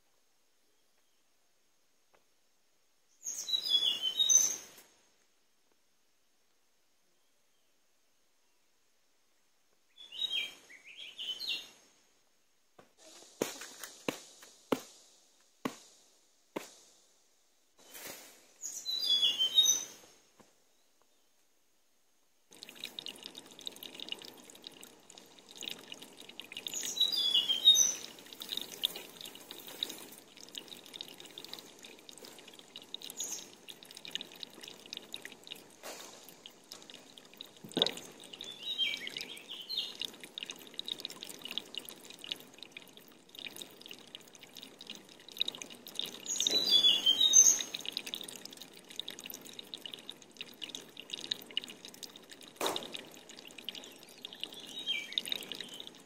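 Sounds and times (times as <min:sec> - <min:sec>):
birds chirping: 0:03.2 - 0:04.8, 0:09.9 - 0:11.8, 0:18.6 - 0:20.1, 0:22.6 - 0:35.0, 0:36.2 - 0:40.4, 0:45.9 - 0:48.2, 0:53.7 - 0:56.0
dripping running water: 0:22.5 - 0:56.0.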